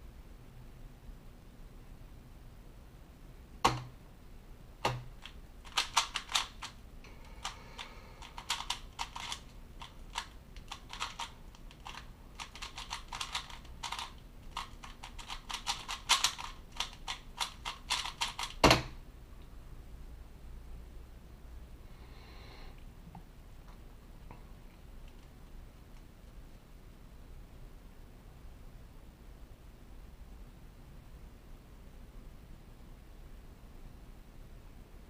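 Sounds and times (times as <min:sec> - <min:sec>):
plastic puzzle cube clicking: 0:04.9 - 0:06.8, 0:07.4 - 0:18.6.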